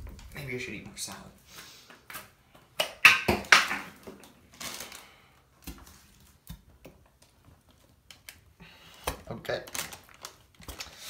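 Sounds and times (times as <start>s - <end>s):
plastic rustling: 3.8s - 11.0s.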